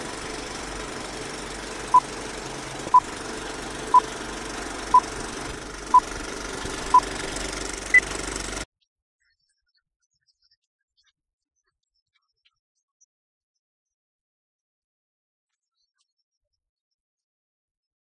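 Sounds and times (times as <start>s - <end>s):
film projector clatter: 0.0s - 8.7s.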